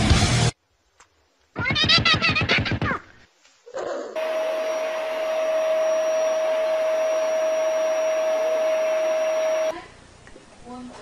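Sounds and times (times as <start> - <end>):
electric appliance motor whirring: 4.2 - 9.7.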